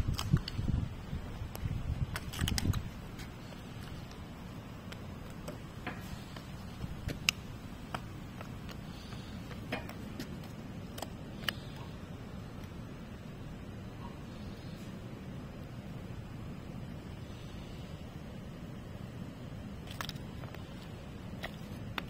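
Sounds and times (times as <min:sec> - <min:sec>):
low background rumble: 0:00.0 - 0:22.0
ostrich beak pecking ticks: 0:04.8 - 0:12.0.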